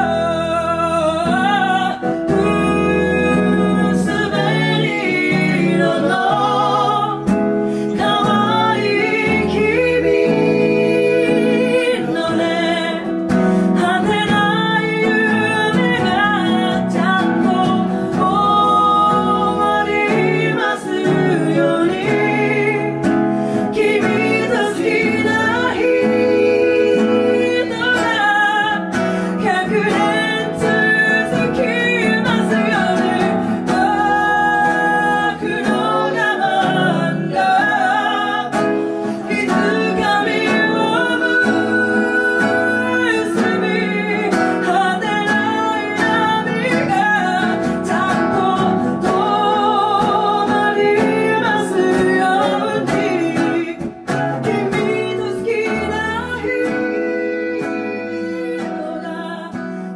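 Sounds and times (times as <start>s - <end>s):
acoustic guitars playing: 0.0s - 59.9s
woman singing: 0.0s - 59.9s.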